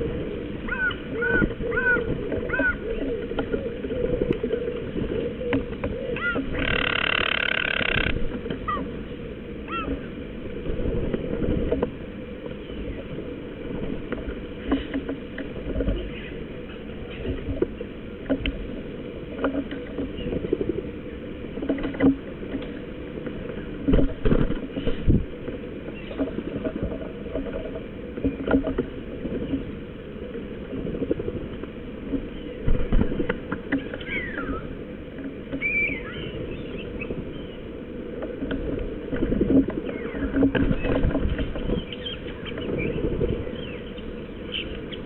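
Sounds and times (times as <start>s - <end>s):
birds knocking and pecking: 5.5s - 8.6s
short high bird calls: 35.6s - 36.9s.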